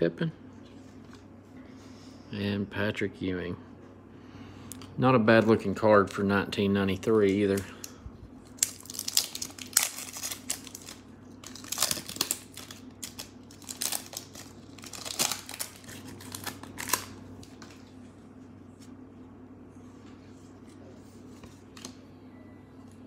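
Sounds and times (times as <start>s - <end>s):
wrapper crinkling and tearing: 8.4s - 17.2s.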